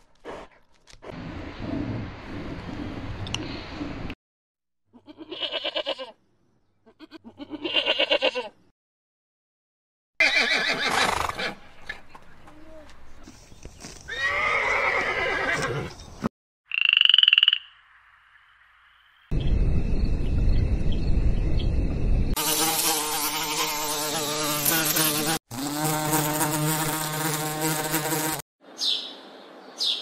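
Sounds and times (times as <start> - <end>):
goat kid bleating: 4.9 - 6.2, 6.8 - 8.6
pony whinnying and snorting: 10.2 - 11.6, 14.1 - 16.0.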